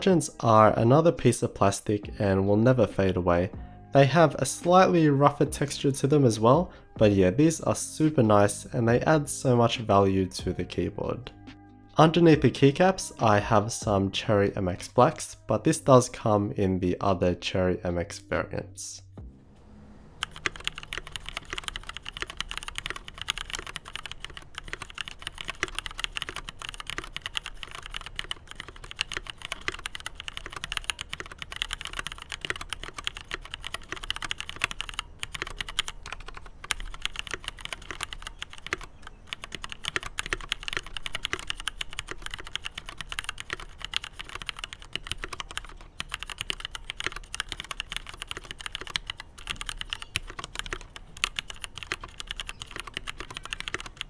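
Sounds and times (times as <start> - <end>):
typing on mechanical keyboard: 20.2 - 54.0.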